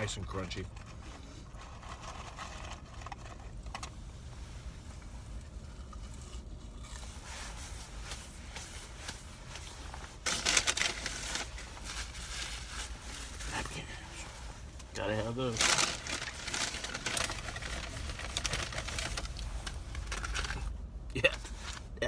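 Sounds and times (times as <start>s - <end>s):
low steady rumble: 0.0s - 22.0s
paper bag rustling and crinkling: 0.4s - 3.9s, 7.2s - 13.9s, 15.0s - 20.8s
chewing crunchy fries: 5.3s - 8.1s.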